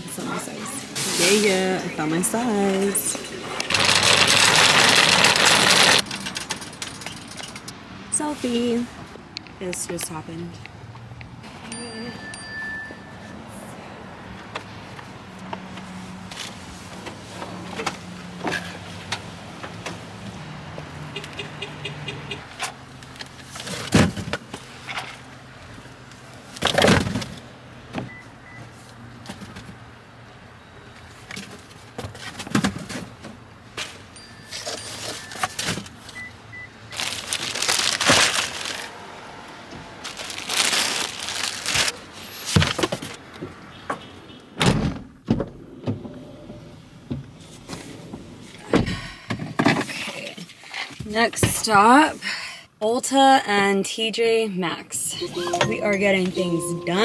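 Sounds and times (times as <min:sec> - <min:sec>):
paper and bags rustling: 0:03.7 - 0:06.2, 0:36.9 - 0:38.9, 0:40.0 - 0:42.9.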